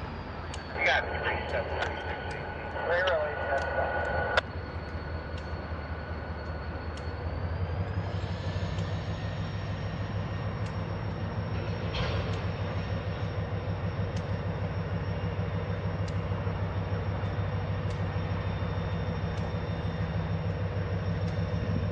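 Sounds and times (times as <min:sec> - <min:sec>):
thin high whine: 0:00.0 - 0:10.4
diesel locomotive engine drone: 0:00.0 - 0:21.9
faint clicks: 0:00.4 - 0:00.8, 0:01.4 - 0:05.6, 0:06.4 - 0:07.2, 0:14.1 - 0:14.4, 0:16.0 - 0:18.3, 0:19.2 - 0:20.1, 0:21.1 - 0:21.6.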